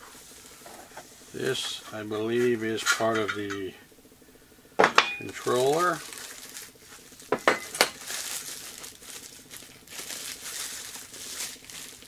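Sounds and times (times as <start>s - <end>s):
plastic bag crinkling: 5.2s - 12.0s.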